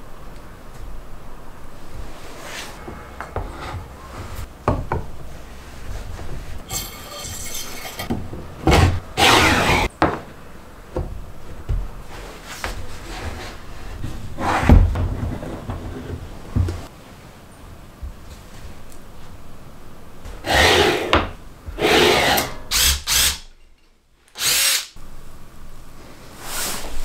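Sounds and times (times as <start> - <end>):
metallic rattle: 6.7 - 8.1.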